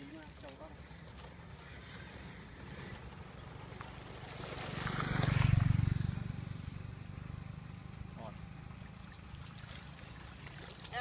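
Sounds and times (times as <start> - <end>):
water sloshing and splashing: 0.0 - 6.2, 8.6 - 11.0.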